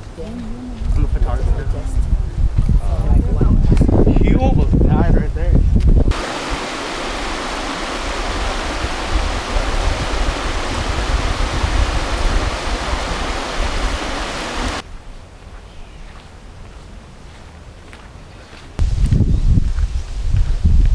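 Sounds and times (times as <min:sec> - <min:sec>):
river water rushing: 0:06.1 - 0:14.8
quiet outdoor ambience: 0:06.1 - 0:20.4.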